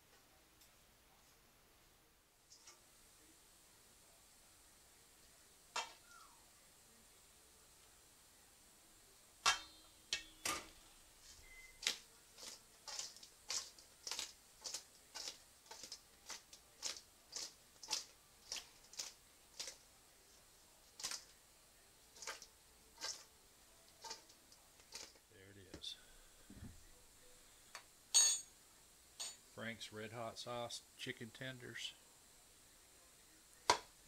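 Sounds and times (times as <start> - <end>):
food tossed in metal bowl: 9.5 - 19.9, 20.9 - 21.3, 22.1 - 23.3, 23.9 - 25.2.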